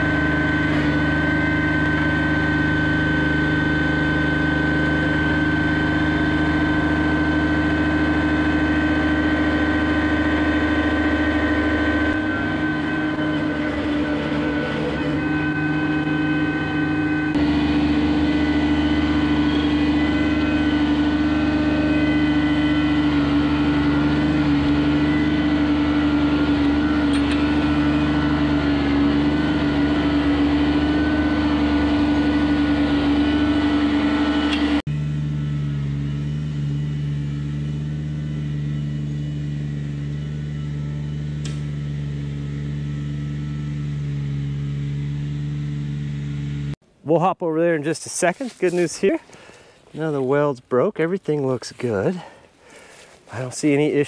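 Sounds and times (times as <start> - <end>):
diesel tractor engine droning: 0.0 - 54.0.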